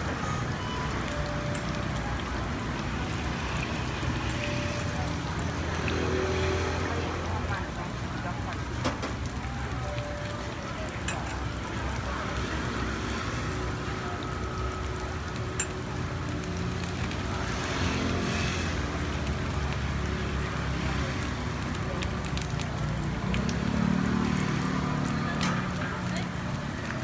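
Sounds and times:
batter sizzling in hot pan: 0:10.7 - 0:27.0.

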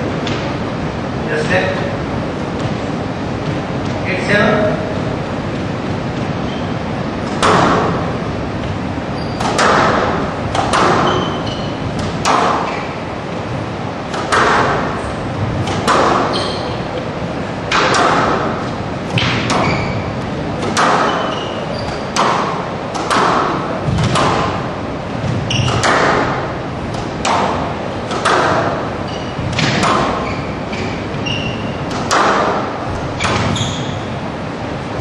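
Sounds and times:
squash ball smacking: 0:07.2 - 0:08.8, 0:09.4 - 0:13.0, 0:14.1 - 0:16.8, 0:17.6 - 0:34.1.

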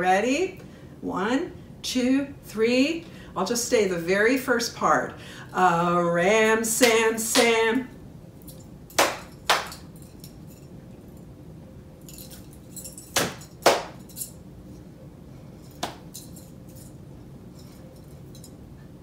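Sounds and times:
metal bracelets jingling: 0:08.4 - 0:10.8, 0:12.0 - 0:14.4, 0:15.6 - 0:18.6
hand slap: 0:09.0 - 0:09.8, 0:13.2 - 0:14.0, 0:15.8 - 0:16.0
hands clapping: 0:09.0 - 0:09.8, 0:13.2 - 0:14.0.

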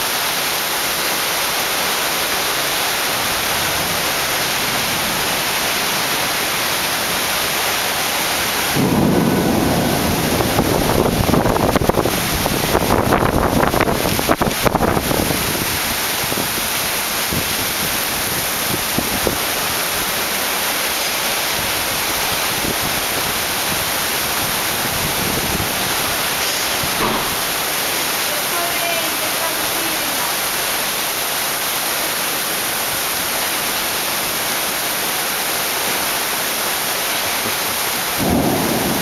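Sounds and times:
heavy rain falling: 0:00.0 - 0:39.0
thunder rumbling: 0:03.2 - 0:20.0, 0:21.4 - 0:28.2, 0:38.0 - 0:39.0.

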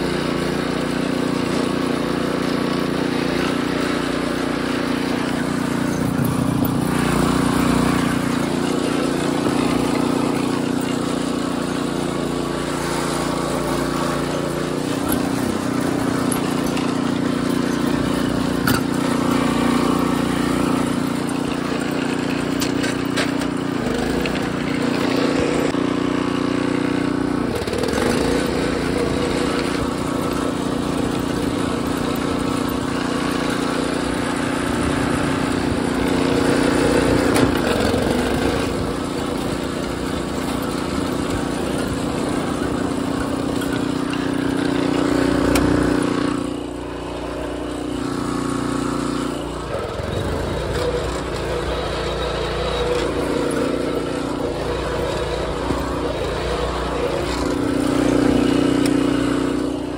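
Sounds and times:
small engine running: 0:00.0 - 0:59.9.

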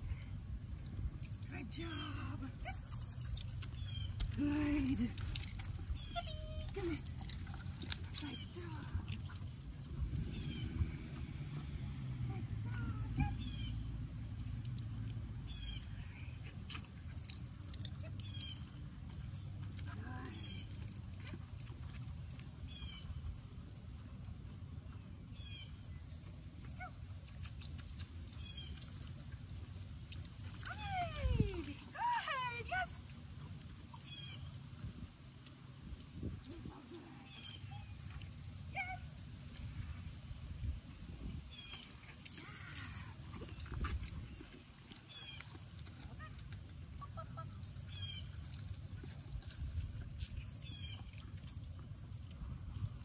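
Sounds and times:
low rumble: 0:00.0 - 0:16.6
low steady rumble: 0:00.0 - 0:53.0
bird calling: 0:03.7 - 0:04.4.

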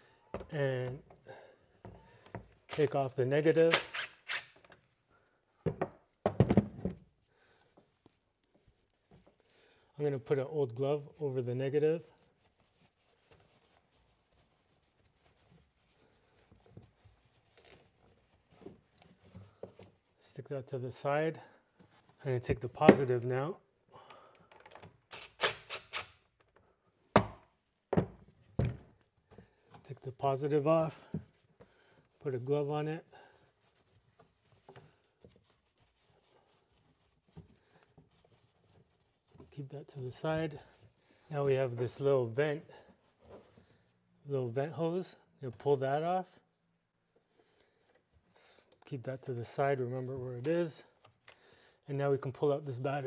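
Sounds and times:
faint rustling of work gloves: 0:00.0 - 0:53.0
gloved hands tapping and rustling: 0:05.6 - 0:09.9, 0:12.0 - 0:20.2, 0:33.2 - 0:41.2.

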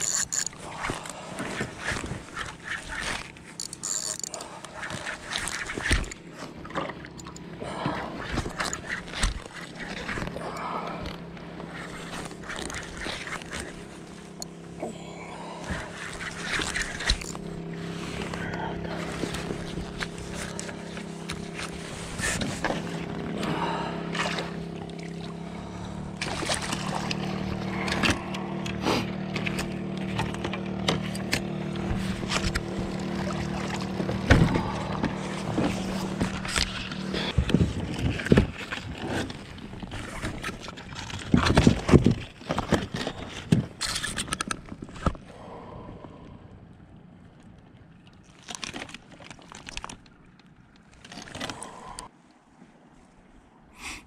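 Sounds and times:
fish knocking and clattering in kayak: 0:00.0 - 0:14.8, 0:15.4 - 0:45.4, 0:46.8 - 0:52.0
steady low hum: 0:00.0 - 0:48.3.

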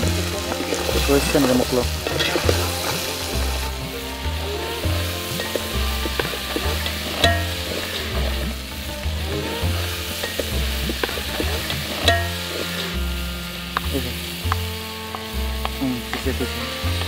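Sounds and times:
background music with bass line: 0:00.0 - 0:17.0
ladle stirring in a pot: 0:00.3 - 0:13.0.

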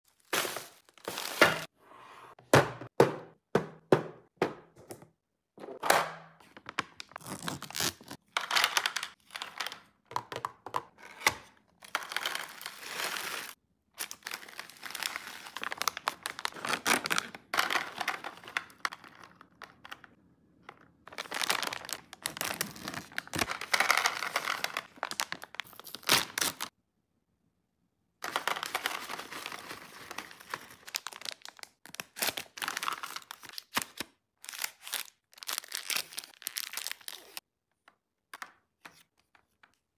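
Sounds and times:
candy into plastic tray: 0:06.4 - 0:26.7, 0:28.2 - 0:39.8
plastic packaging crinkling: 0:11.9 - 0:19.5, 0:21.1 - 0:26.7, 0:28.2 - 0:37.4.

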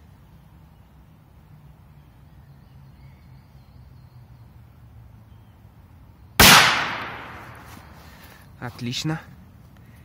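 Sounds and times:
firecracker bang: 0:06.4 - 0:07.7.

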